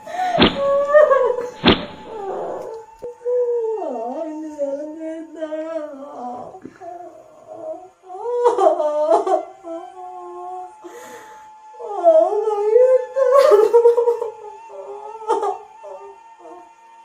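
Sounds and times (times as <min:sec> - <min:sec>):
woman wailing: 0:00.0 - 0:02.7
wooden stick whacks: 0:00.2 - 0:02.8.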